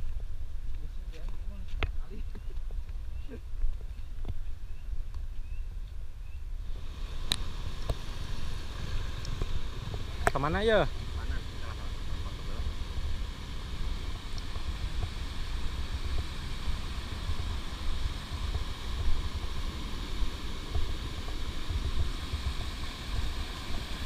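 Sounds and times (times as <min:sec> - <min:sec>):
stream water rushing over rocks: 0:06.6 - 0:24.0.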